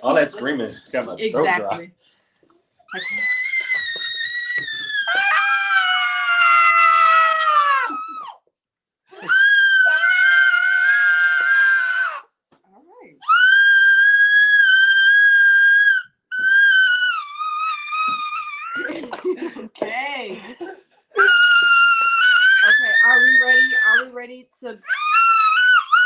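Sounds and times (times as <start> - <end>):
adult screaming: 2.9 - 8.4, 9.2 - 12.3, 13.2 - 18.9, 21.2 - 24.1, 24.8 - 26.0
toddler screaming in play: 2.9 - 8.4, 9.2 - 12.3, 13.2 - 18.9, 21.2 - 24.1, 24.8 - 26.0.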